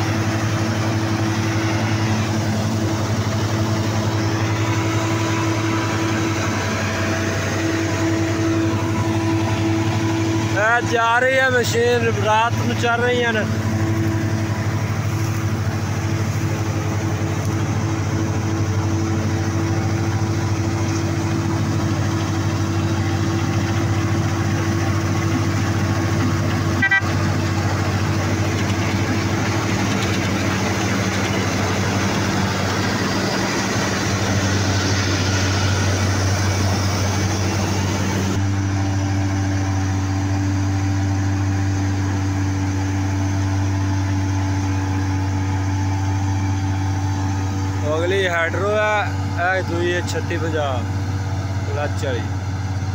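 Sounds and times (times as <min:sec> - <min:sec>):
threshing machinery rattling: 0:00.0 - 0:42.0
diesel engine drone: 0:00.0 - 0:52.9.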